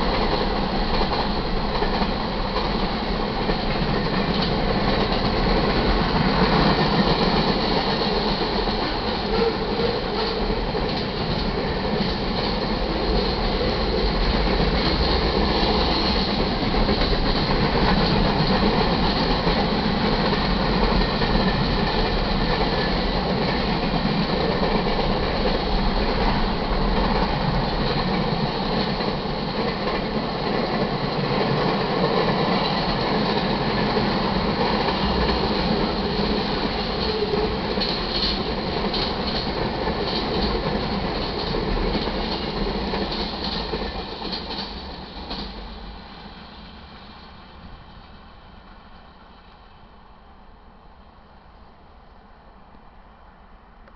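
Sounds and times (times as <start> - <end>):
steel wheels rolling on rails: 0.0 - 45.8.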